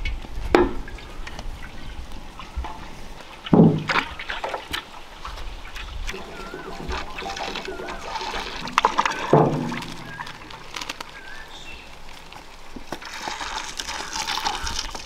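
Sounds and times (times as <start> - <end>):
bird chirps: 6.1 - 11.9.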